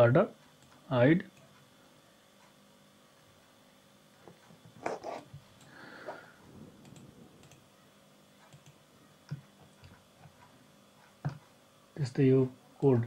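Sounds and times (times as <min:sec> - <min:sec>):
computer mouse clicks: 0:06.8 - 0:07.6, 0:08.4 - 0:10.5.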